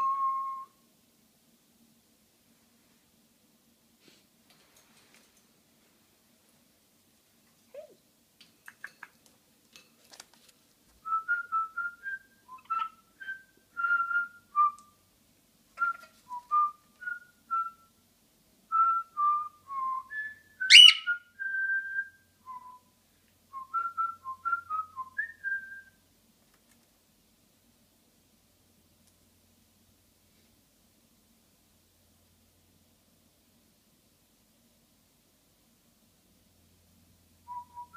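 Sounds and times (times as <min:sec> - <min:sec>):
cockatiel whistling a tune: 0:00.0 - 0:00.7, 0:11.1 - 0:14.8, 0:18.8 - 0:22.8, 0:37.5 - 0:37.9
loud sharp bird chirp: 0:20.7 - 0:21.2.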